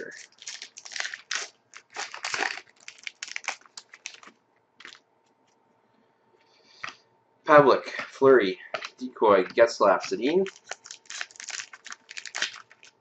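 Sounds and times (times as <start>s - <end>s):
paper rustling: 0.0s - 5.0s, 8.8s - 12.9s.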